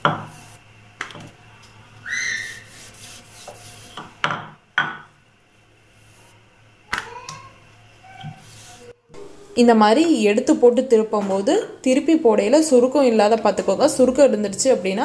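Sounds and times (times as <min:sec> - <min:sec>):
rolling pin rubbing dough: 0:02.2 - 0:04.2, 0:08.2 - 0:08.9.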